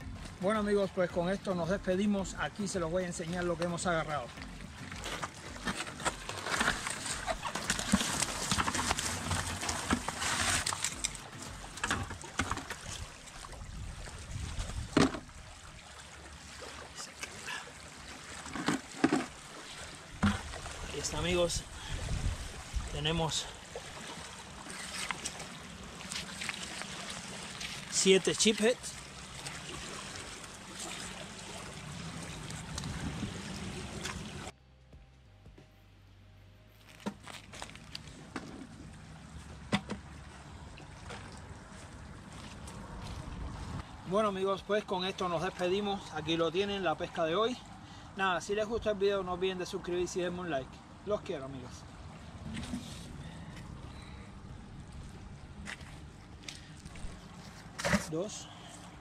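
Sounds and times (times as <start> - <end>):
water rushing on shore: 0.0 - 34.5
wind: 0.0 - 59.0
fish slapping and sliding: 4.8 - 13.3, 23.8 - 27.9.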